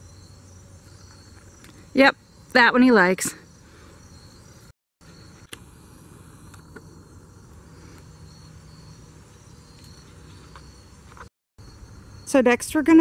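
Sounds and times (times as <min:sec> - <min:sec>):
crickets chirring: 0:00.0 - 0:13.0.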